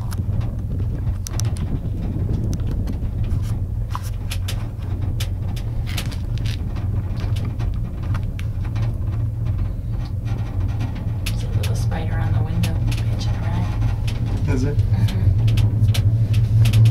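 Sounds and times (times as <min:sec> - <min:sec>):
cabin clicks and rattles: 0:00.0 - 0:16.9
gondola cabin rumble: 0:00.0 - 0:16.9.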